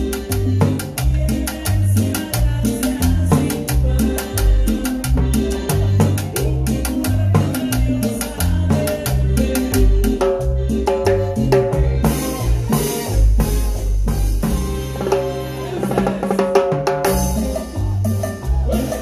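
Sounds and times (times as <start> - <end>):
latin dance band playing: 0.0 - 19.0.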